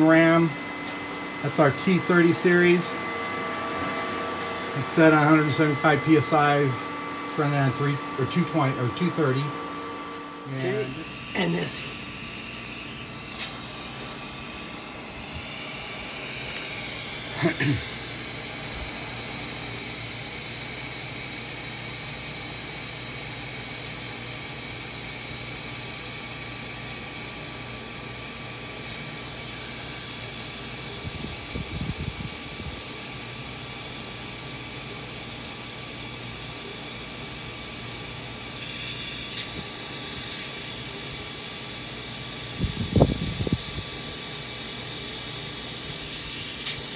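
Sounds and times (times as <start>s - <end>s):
tire inflator click: 12.7s - 14.8s, 38.5s - 39.8s, 45.9s - 46.9s
compressed air hissing into tire: 12.8s - 20.5s, 38.5s - 39.9s, 45.9s - 46.9s.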